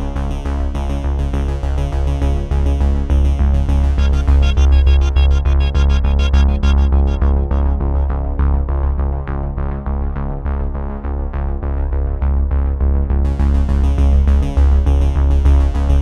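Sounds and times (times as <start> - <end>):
heavy bass pulse: 2.4 - 10.6, 12.0 - 16.0
electronic synthesizer music: 3.7 - 9.0.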